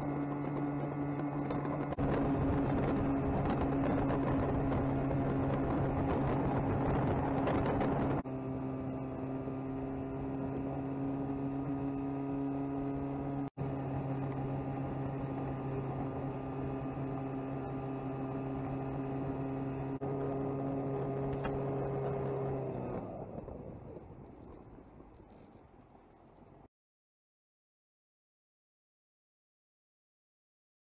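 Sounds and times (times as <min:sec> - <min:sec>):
wind noise: 0:00.0 - 0:08.2
outboard motor running: 0:00.0 - 0:24.4.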